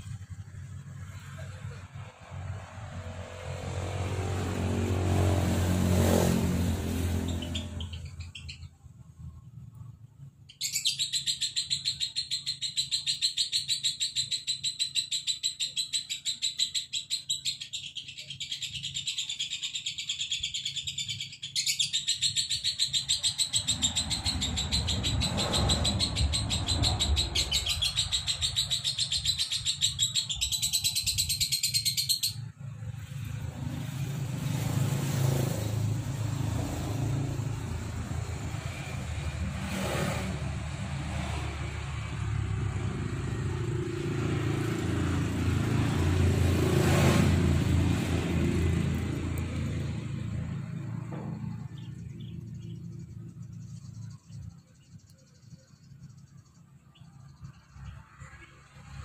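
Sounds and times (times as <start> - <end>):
lovebird chattering song: 7.2 - 8.8, 10.5 - 32.5.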